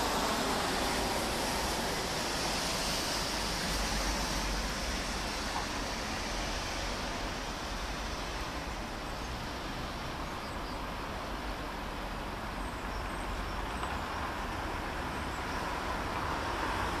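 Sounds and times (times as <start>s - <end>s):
distant jet engine roar: 0.0s - 13.0s.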